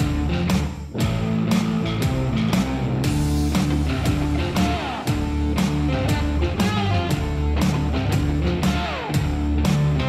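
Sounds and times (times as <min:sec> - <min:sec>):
guitar background music: 0:00.0 - 0:10.0.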